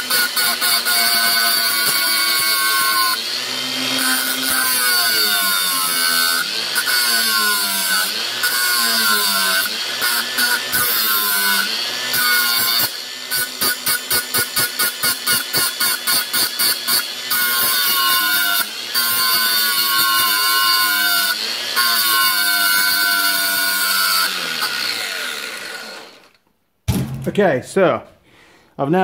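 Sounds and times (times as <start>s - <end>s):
angle grinder grinding steel: 0.0s - 26.4s.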